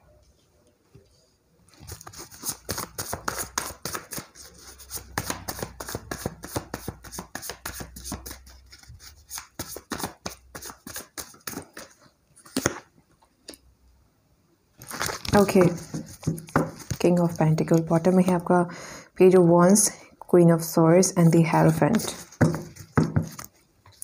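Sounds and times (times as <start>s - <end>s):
cards shuffled by hand: 1.7s - 12.9s, 14.8s - 18.4s, 21.6s - 24.0s.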